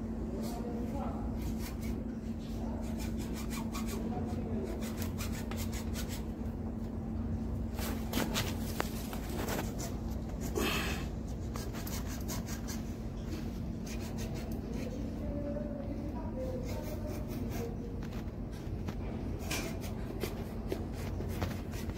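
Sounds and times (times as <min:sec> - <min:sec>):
steady low hum: 0:00.0 - 0:21.9
blade scraping cable insulation: 0:02.6 - 0:06.3, 0:07.7 - 0:10.6, 0:13.8 - 0:15.3, 0:16.3 - 0:21.9.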